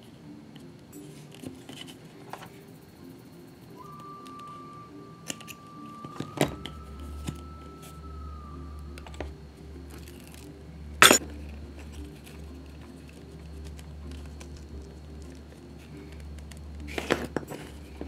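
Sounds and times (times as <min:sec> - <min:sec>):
soft background music: 0:00.0 - 0:18.0.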